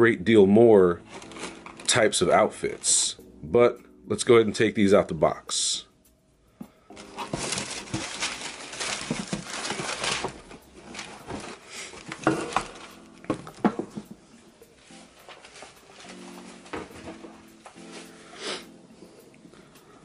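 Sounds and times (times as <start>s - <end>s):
tissue paper rustling: 1.0s - 3.2s, 6.9s - 18.6s
shoes knocking: 11.2s - 14.2s.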